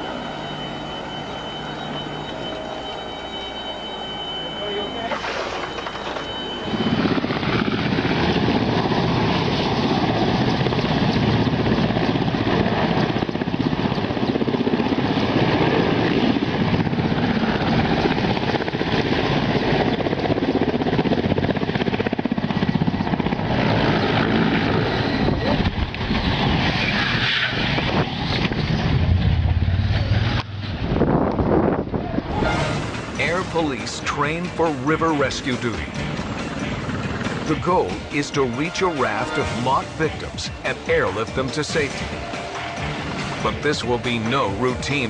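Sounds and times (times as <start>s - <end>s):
helicopter engine and rotor: 0.0s - 45.0s
deep rumble: 25.2s - 33.2s.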